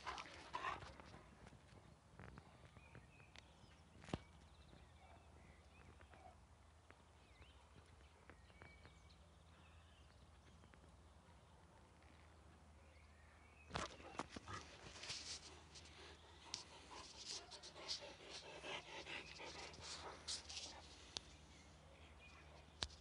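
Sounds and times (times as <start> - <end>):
dog scuffing against microphone: 13.7 - 15.9, 16.5 - 18.6, 19.2 - 21.0.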